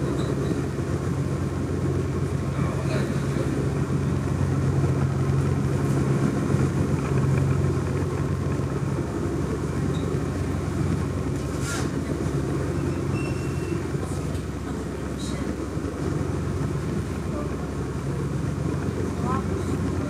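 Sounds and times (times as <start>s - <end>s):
ferry engine hum: 0.0s - 20.0s.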